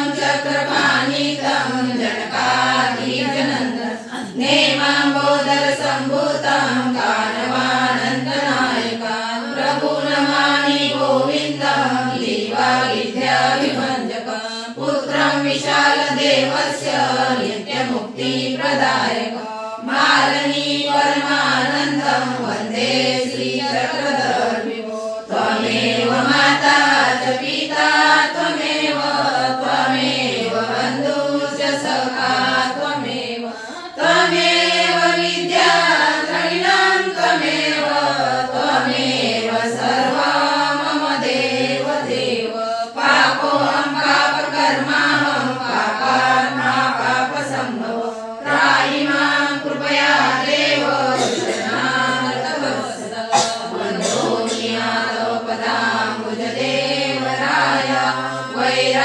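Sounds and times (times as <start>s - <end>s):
group singing a devotional chant: 0.0s - 59.0s.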